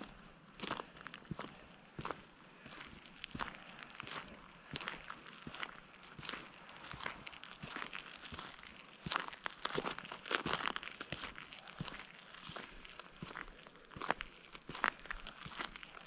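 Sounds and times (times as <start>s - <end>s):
footsteps on gravel: 0.0s - 16.0s.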